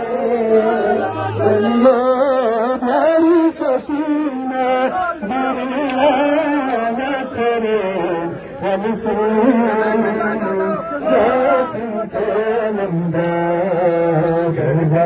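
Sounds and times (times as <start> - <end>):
men chanting a lament: 0.0 - 15.0.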